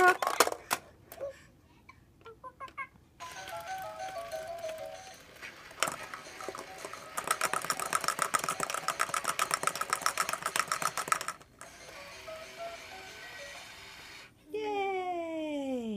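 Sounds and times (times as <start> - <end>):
toy clacking: 2.6 - 14.3
fast clicking rattle: 5.8 - 13.1.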